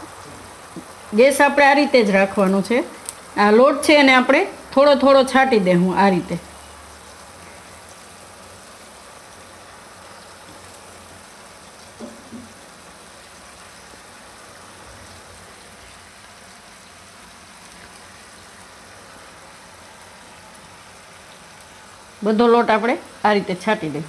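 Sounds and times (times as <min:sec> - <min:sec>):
broth simmering and bubbling: 0:05.6 - 0:22.2.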